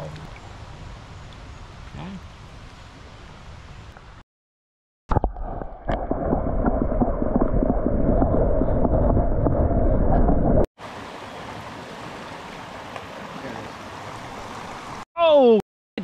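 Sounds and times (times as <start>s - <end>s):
small stream flowing: 0.0s - 1.4s, 10.8s - 15.0s
muffled rushing and gurgling water: 10.8s - 15.0s.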